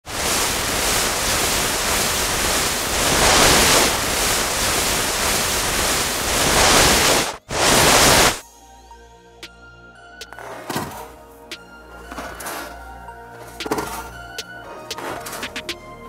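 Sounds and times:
wind buffeting microphone: 0.0 - 8.4.

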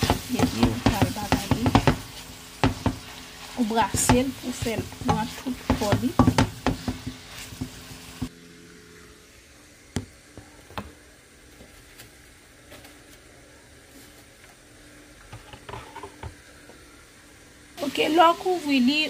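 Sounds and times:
wooden spoon stirring in pot: 0.0 - 8.3
meat sizzling: 0.0 - 8.4, 17.8 - 19.0.

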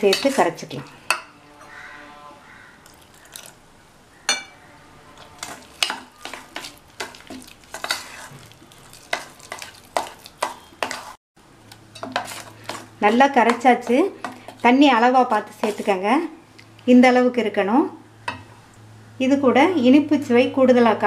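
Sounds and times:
metal spoon scraping a bowl: 4.3 - 11.2.

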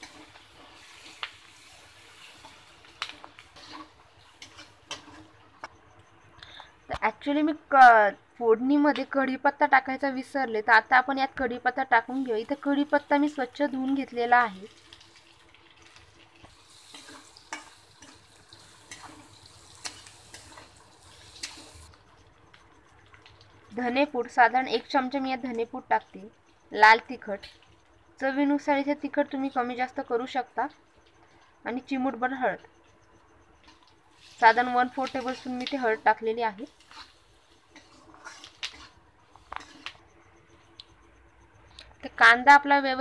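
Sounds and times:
spatula scraping and tapping pan: 0.0 - 5.8, 15.8 - 21.9, 33.6 - 40.1
onions sizzling in oil: 0.0 - 6.3, 8.7 - 32.7, 33.4 - 42.8.

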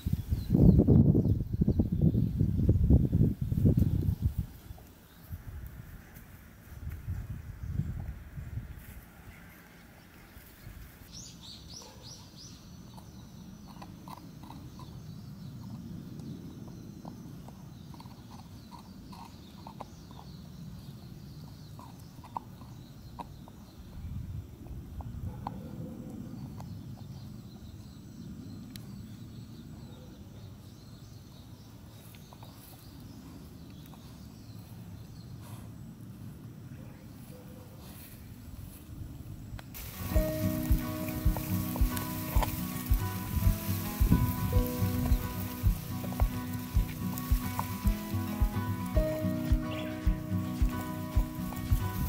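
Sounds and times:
low chewing rumble: 0.4 - 29.0, 39.8 - 52.0.

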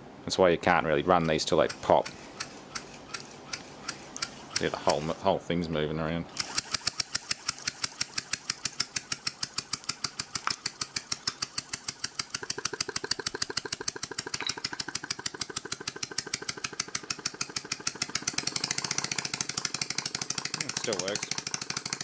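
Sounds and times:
compressor rapid clicking: 1.2 - 5.0, 6.3 - 22.0.

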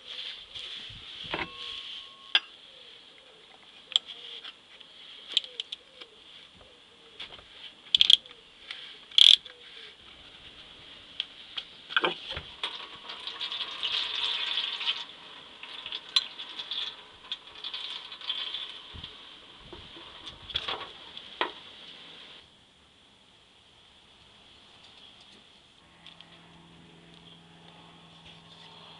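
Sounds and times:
oil trickling: 12.5 - 20.3.

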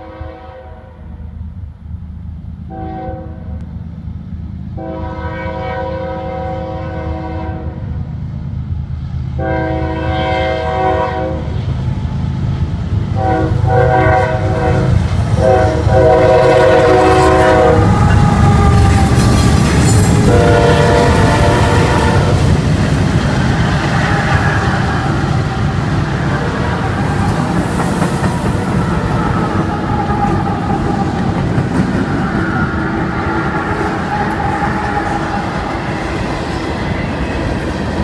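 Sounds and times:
locomotive air horn blasts: 0.0 - 1.1, 2.7 - 3.6, 4.8 - 7.8, 9.4 - 11.5, 13.2 - 22.5, 28.5 - 31.2, 33.1 - 36.1.

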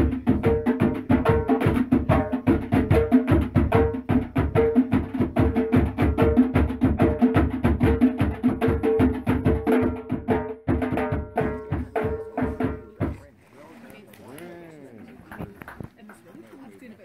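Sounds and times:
rapid percussion: 0.0 - 13.4.

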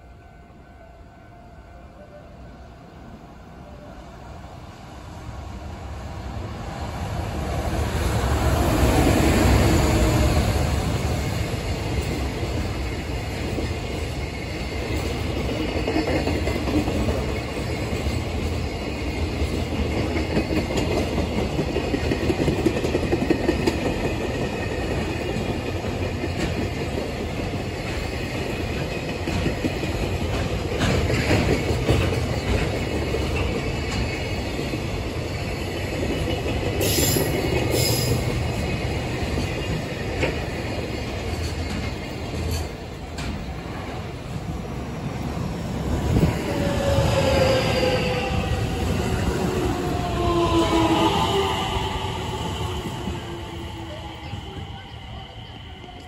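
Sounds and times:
train wheels clacking over rail joints: 11.8 - 44.0.

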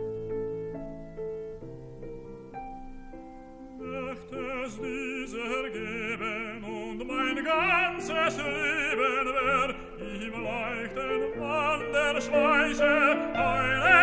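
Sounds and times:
piano accompaniment: 0.0 - 14.0
tenor singing: 3.7 - 14.0.

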